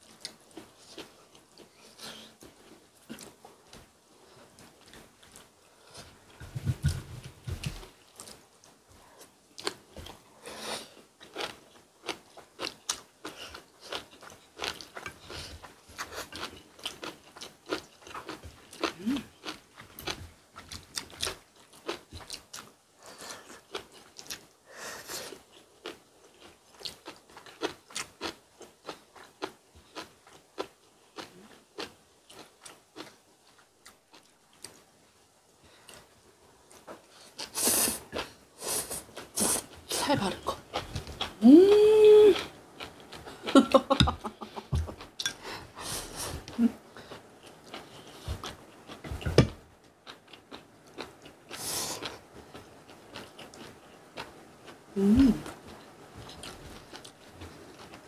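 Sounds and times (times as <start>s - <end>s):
people chewing and biting: 6.6s - 34.8s.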